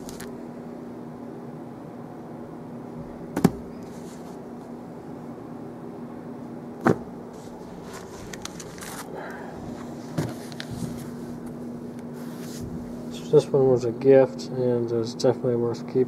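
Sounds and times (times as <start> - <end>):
steady low hum: 0.0 - 16.0
books knocking: 3.4 - 3.7, 6.8 - 7.1.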